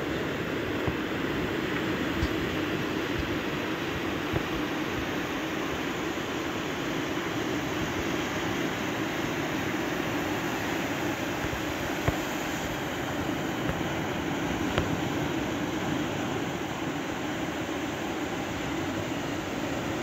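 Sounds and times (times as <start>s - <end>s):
surf breaking on beach: 7.2s - 20.0s.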